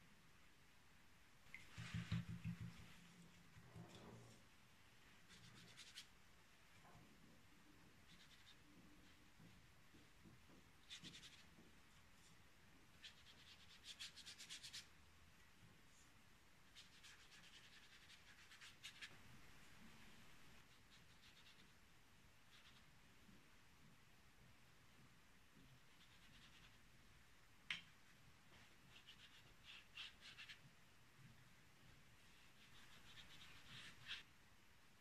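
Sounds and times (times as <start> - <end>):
brush strokes on paper: 1.5 - 4.4, 5.0 - 6.2, 8.0 - 9.4, 28.5 - 30.6, 32.2 - 34.3.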